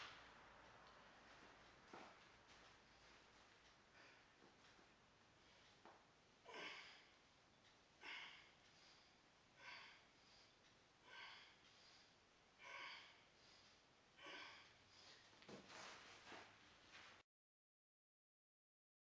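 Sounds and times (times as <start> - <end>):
man's forceful breaths: 1.4 - 5.9, 8.0 - 16.6.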